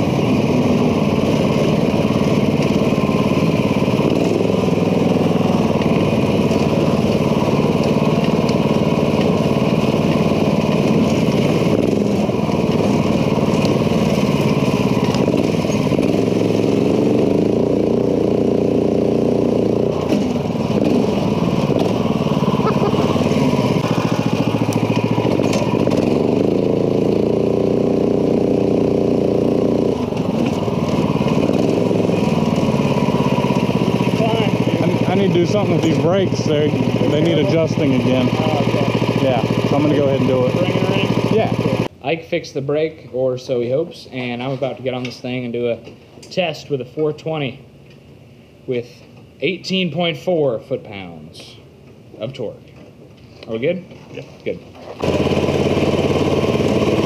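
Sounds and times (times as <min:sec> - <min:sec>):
go-kart engine revving: 0:00.0 - 0:41.9, 0:54.0 - 0:57.0.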